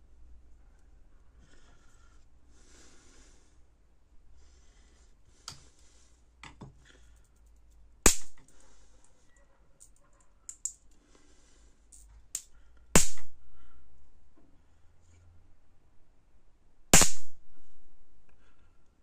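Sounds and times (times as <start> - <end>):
high-voltage spark cracks: 12.4 - 13.3, 16.9 - 17.3.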